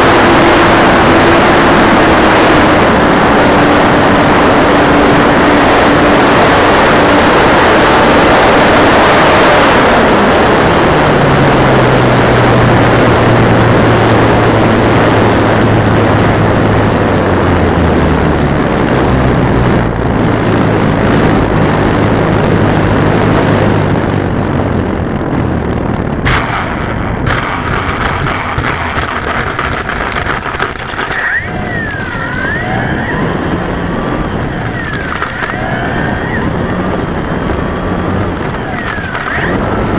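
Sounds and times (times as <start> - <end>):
rc plane motor hum: 0.0 - 24.7, 26.4 - 39.9
wind rush: 0.0 - 39.9
plane clattering on grass landing: 26.3 - 39.9.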